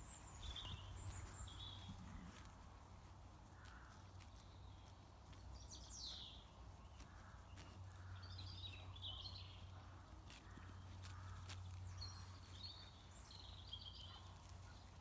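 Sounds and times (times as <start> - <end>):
small birds calling: 0.0 - 15.0.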